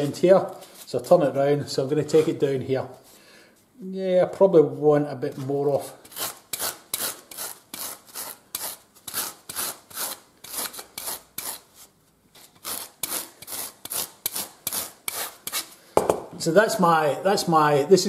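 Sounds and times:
rasp scraping: 6.0 - 15.8.

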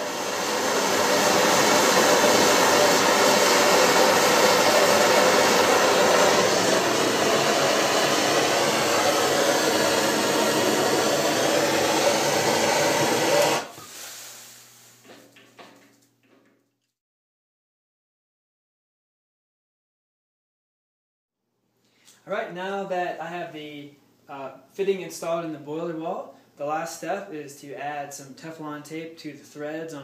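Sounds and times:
gas torch hissing: 0.0 - 14.8.

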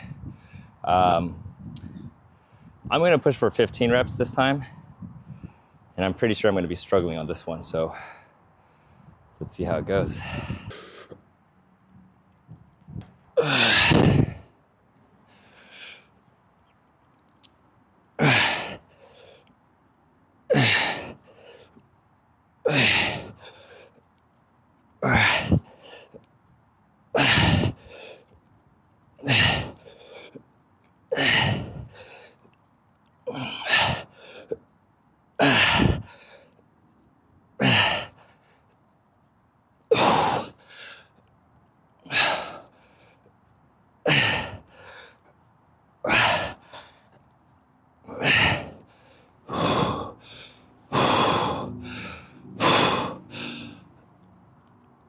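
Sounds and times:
man grunting: 13.4 - 14.1, 18.2 - 18.8, 20.5 - 21.1, 22.7 - 23.4, 25.0 - 25.6, 27.2 - 27.8, 29.2 - 29.7, 31.2 - 31.8, 33.3 - 34.0, 48.1 - 48.8
man exhaling hard: 49.5 - 53.8.

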